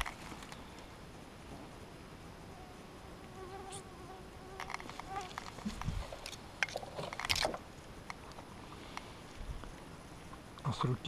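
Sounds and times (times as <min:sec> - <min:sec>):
flying insect buzzing: 0:01.6 - 0:06.4
rustling in grass: 0:04.6 - 0:07.6.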